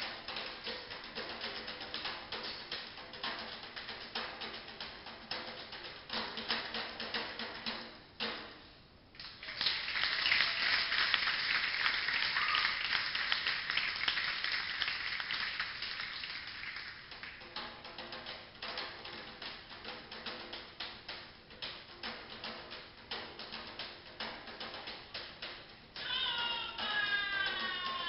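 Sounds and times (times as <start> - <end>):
hand drums playing: 0.0 - 8.4, 17.1 - 28.0.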